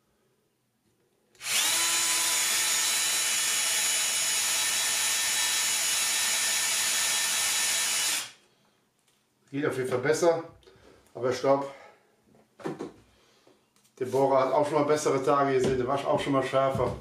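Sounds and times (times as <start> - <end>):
cordless drill boring wood: 1.4 - 8.4.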